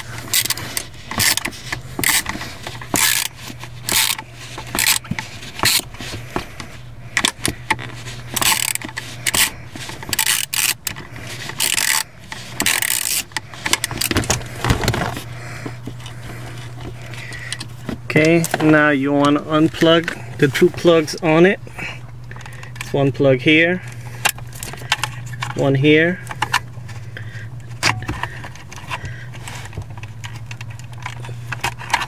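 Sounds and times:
ratchet clicking: 0.3s - 5.9s, 7.2s - 14.2s.

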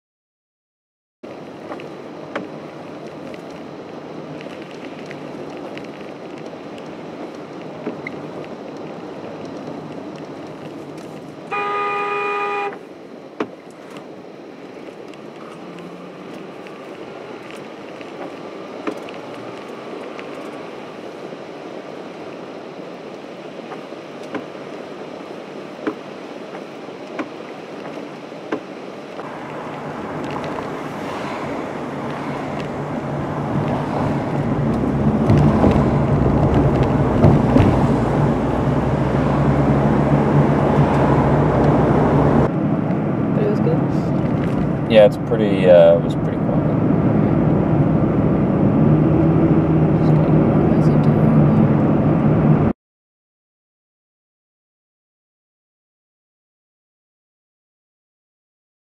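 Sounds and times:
car road and tyre noise: 1.2s - 52.8s
car horn blast: 11.5s - 12.8s.

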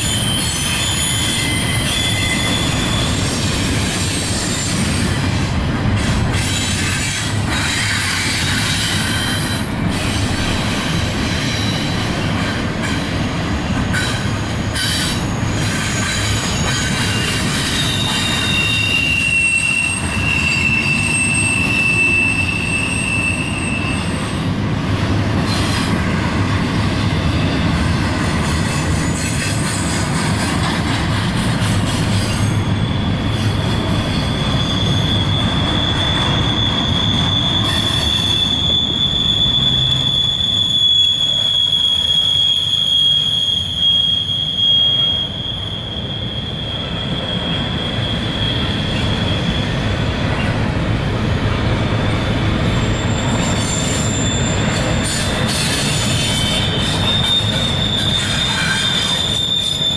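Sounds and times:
high thin wheel squeal: 0.0s - 4.9s, 14.0s - 24.2s, 31.9s - 49.8s, 52.7s - 59.9s
train wheels rumbling on rail: 0.0s - 59.9s.

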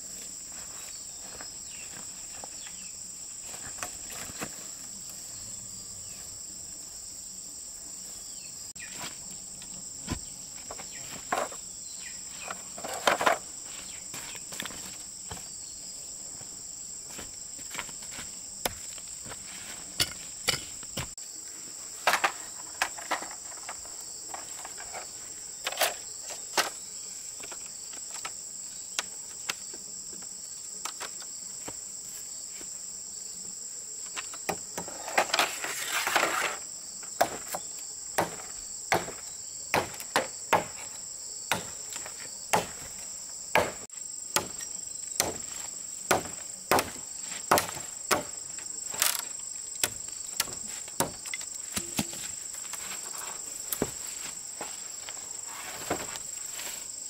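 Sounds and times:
insects chirring: 0.0s - 57.0s
rustling scraping: 34.9s - 36.6s, 51.6s - 57.0s.

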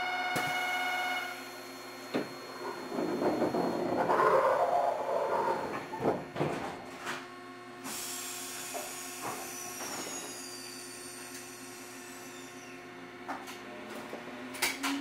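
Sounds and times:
railcar equipment humming: 0.0s - 7.8s
hiss: 7.8s - 12.7s.

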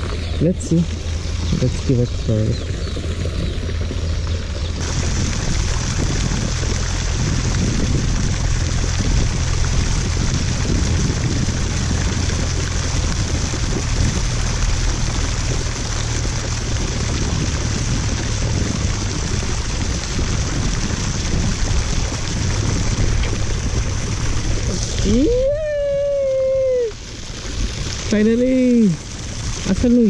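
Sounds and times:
flowing water rushing: 0.0s - 30.0s
low rumble: 0.0s - 30.0s.

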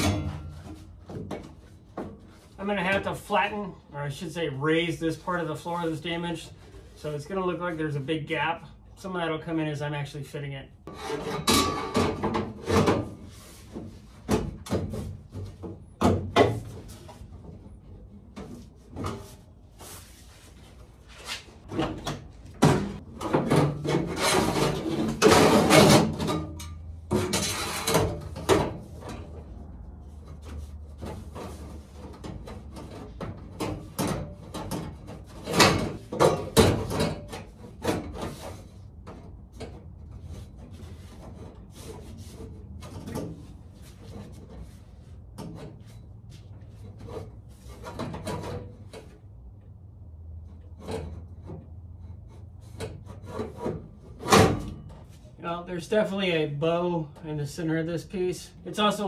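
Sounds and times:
metal knocks and clunks: 0.0s - 3.1s, 10.9s - 19.4s, 21.6s - 29.6s, 30.3s - 41.6s
sheet metal scraping: 10.9s - 14.2s, 22.8s - 49.2s, 50.4s - 55.3s.

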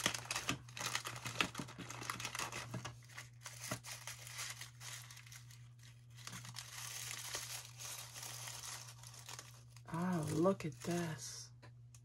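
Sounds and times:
plastic bag and paper crinkling: 0.0s - 11.3s.

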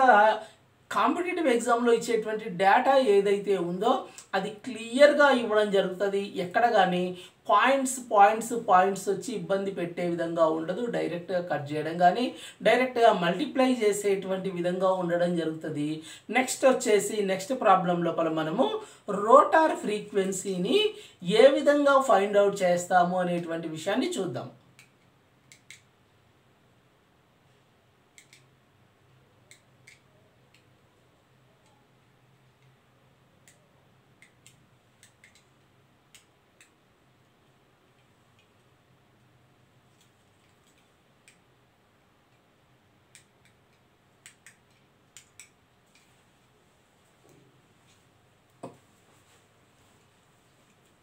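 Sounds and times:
faint low hum: 0.0s - 51.0s
faint clicks: 28.1s - 28.5s, 34.2s - 38.7s, 43.1s - 46.2s.

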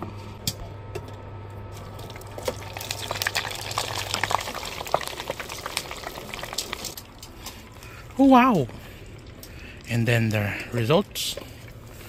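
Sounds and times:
food sizzling in hot oil: 2.0s - 7.0s.

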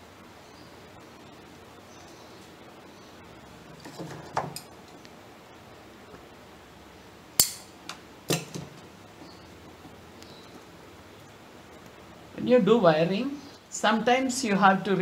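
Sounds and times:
wire cutters snapping wire: 7.4s - 8.7s.

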